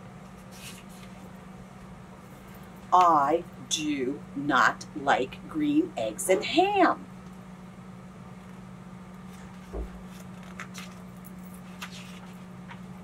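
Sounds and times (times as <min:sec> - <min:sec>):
steady low hum: 0:00.0 - 0:13.0
book page turning: 0:00.3 - 0:01.2, 0:09.3 - 0:12.9.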